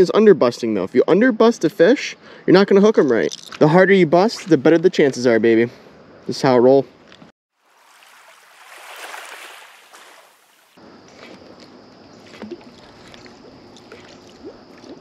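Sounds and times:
water lapping against hull: 7.6s - 10.8s, 12.1s - 15.0s
light splashes and clicks: 12.3s - 15.0s.

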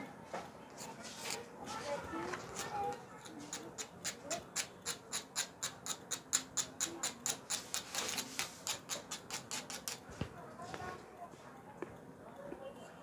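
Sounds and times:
pencil shading strokes scratching: 0.8s - 10.3s.

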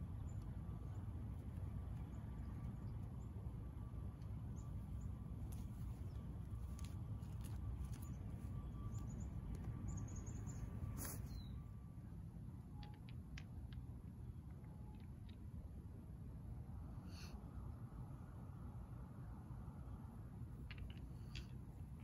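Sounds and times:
faint high bird chirps: 7.8s - 11.7s.

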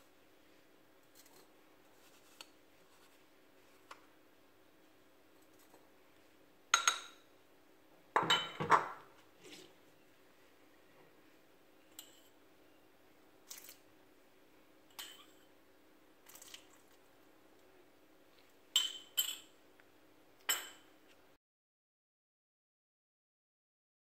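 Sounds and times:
metal utensils clinking on glass bowl: 18.8s - 19.5s.

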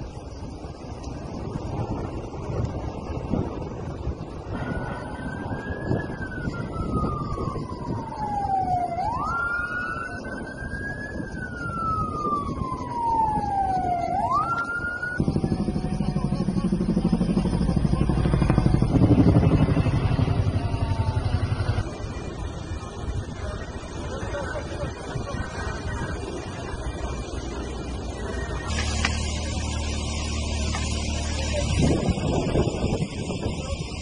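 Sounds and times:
siren wailing: 4.5s - 34.0s
loud low throbbing rumble: 15.2s - 24.1s, 26.0s - 34.0s.

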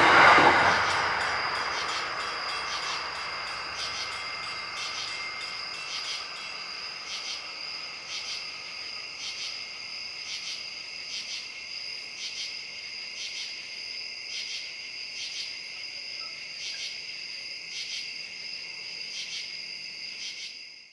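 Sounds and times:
pulsing insect call: 0.0s - 11.6s
passing train: 0.0s - 20.4s
crickets trilling: 0.0s - 20.9s.

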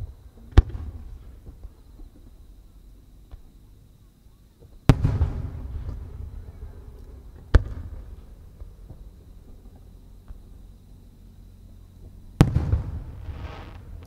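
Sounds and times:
firework shell booms: 4.9s - 6.4s, 7.3s - 9.0s, 12.4s - 14.0s.

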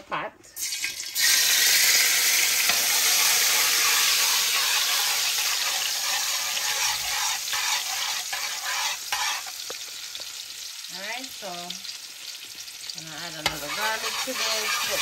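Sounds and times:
garlic sizzling in a pot: 0.6s - 15.0s
stirring in a pot: 2.6s - 10.7s, 11.9s - 15.0s.

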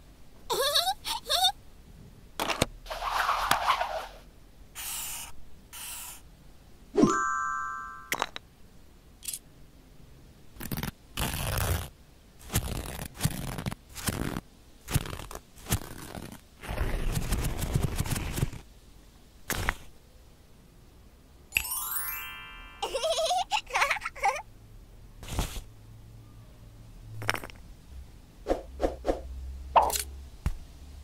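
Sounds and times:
chime sound effect: 7.0s - 8.2s, 21.5s - 23.0s.

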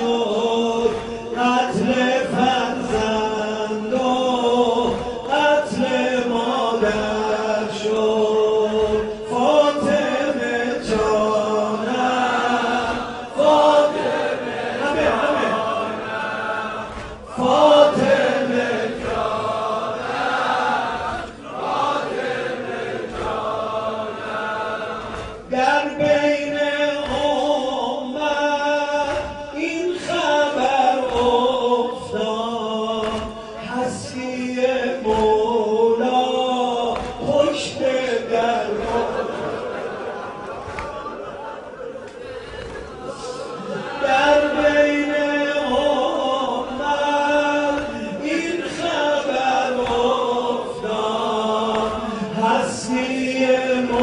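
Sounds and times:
man chanting mournfully: 0.0s - 16.2s, 25.5s - 39.8s.

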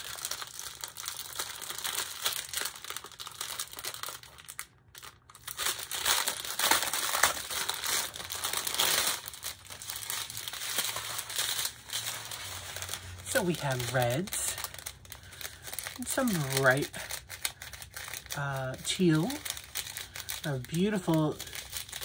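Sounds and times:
plastic bags crinkling: 0.0s - 22.0s.

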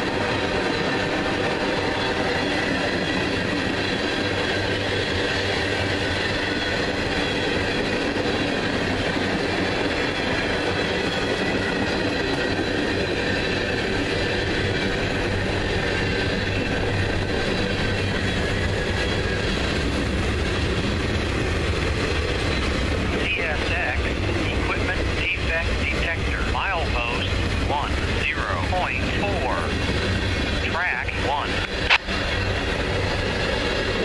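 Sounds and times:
train wheels rumbling on rails: 0.0s - 34.0s.

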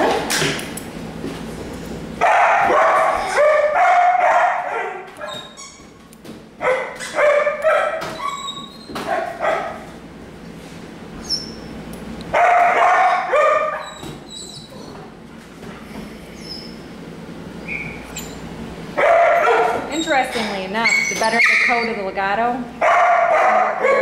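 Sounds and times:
dog crying high-pitched: 7.0s - 9.6s, 12.6s - 14.6s, 19.3s - 22.0s.

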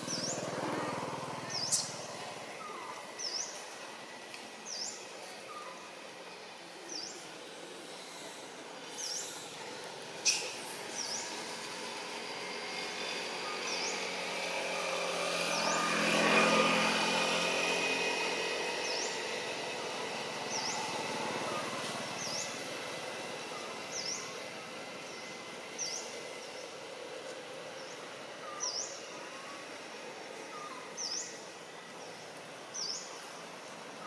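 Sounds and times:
vehicle passing by: 0.0s - 3.4s, 7.4s - 32.1s
bird chirping: 1.4s - 3.6s.

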